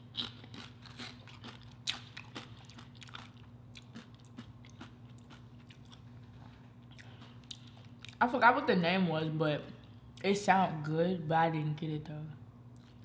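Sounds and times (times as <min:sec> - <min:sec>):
chewing crunchy chips: 0:00.0 - 0:08.2, 0:12.7 - 0:13.0
steady low hum: 0:00.0 - 0:13.0.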